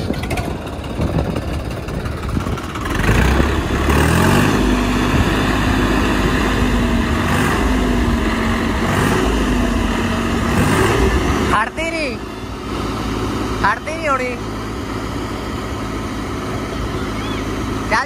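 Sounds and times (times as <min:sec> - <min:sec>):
tractor diesel engine revving: 0:00.0 - 0:18.0.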